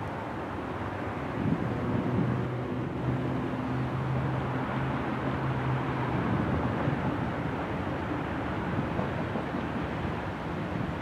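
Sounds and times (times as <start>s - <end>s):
distant vehicle rumble: 0.0s - 11.0s
low engine hum: 0.0s - 11.0s.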